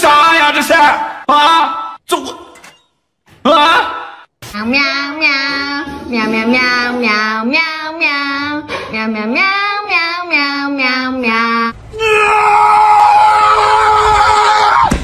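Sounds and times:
high voice singing: 4.4s - 11.8s.

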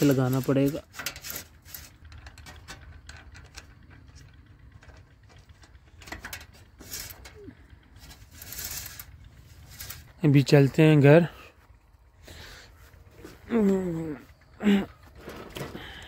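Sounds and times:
bicycle crank clicks and knocks: 0.0s - 10.2s.

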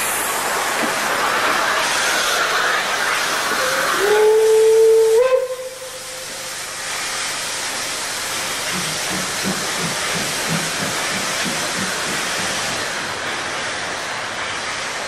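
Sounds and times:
hiss of steam: 0.0s - 15.0s
steam locomotive exhaust beats: 0.0s - 15.0s
steam locomotive whistle: 2.1s - 6.6s.

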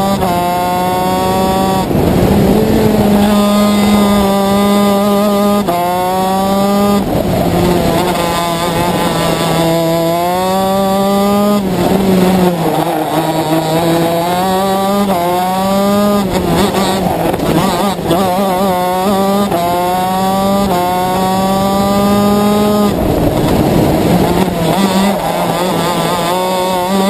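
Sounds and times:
kart engine revving: 0.0s - 27.0s.

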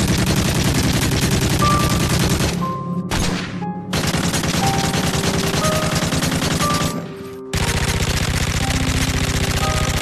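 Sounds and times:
rifle firing full-automatic: 0.0s - 10.0s.

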